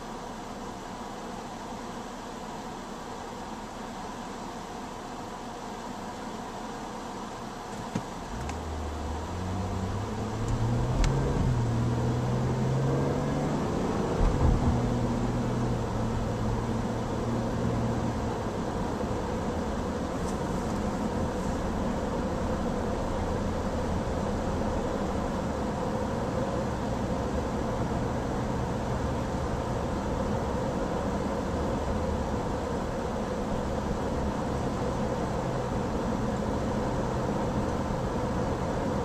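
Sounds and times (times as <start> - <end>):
gear change thumps: 7.7 - 8.6, 14.1 - 15.0
car engine accelerating: 7.8 - 39.0.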